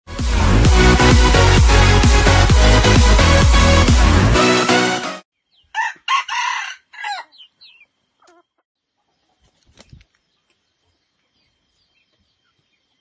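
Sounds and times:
rooster crowing: 0:05.7 - 0:07.4.

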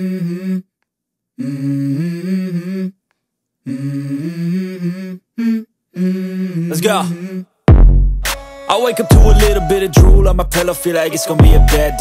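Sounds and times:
person humming a slow melody: 0:00.0 - 0:00.7, 0:01.4 - 0:03.0, 0:03.6 - 0:07.6.

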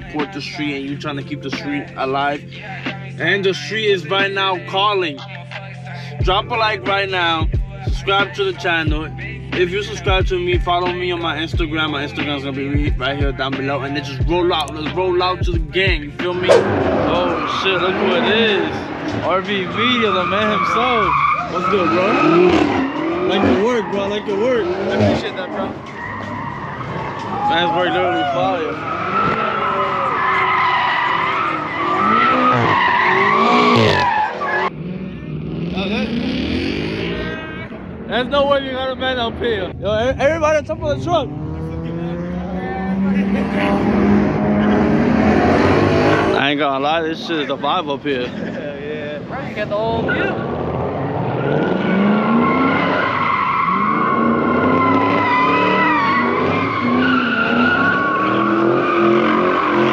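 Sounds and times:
car engine running hard: 0:15.5 - 0:59.9
car tyres squealing: 0:16.2 - 0:59.9.

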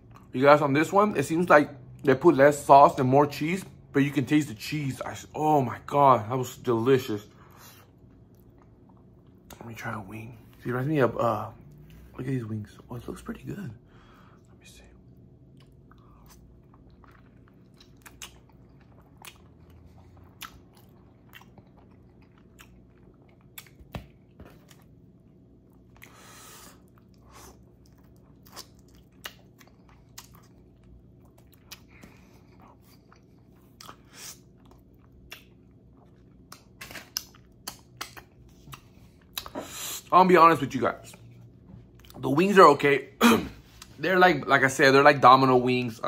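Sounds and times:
faint steady hum: 0:00.0 - 0:46.0
wet mouth smacks: 0:36.5 - 0:39.6.

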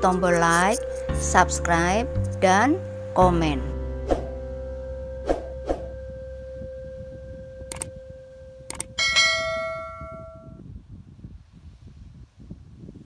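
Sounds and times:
wind on microphone: 0:05.3 - 0:13.0
notification bell ding: 0:09.0 - 0:10.6.

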